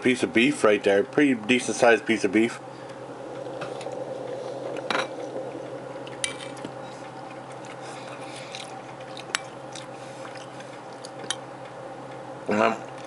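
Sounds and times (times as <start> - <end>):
steady low hum: 0.0 - 13.0
quiet chewing: 5.6 - 12.2.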